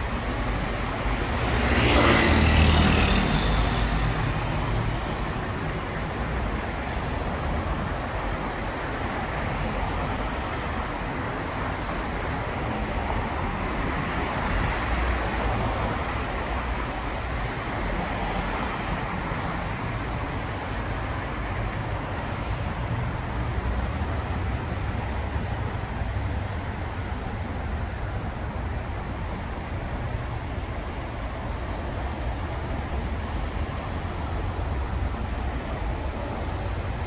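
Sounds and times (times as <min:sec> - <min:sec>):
tyres hissing on wet road: 0:00.1 - 0:11.7.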